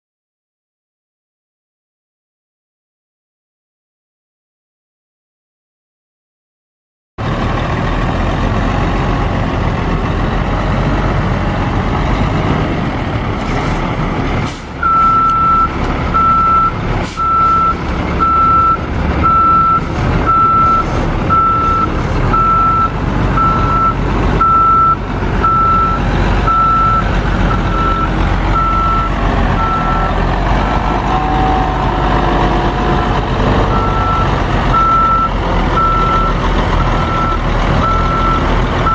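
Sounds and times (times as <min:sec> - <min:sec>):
diesel truck engine running: 0:07.2 - 0:38.9
backup alarm beeping: 0:14.8 - 0:30.1.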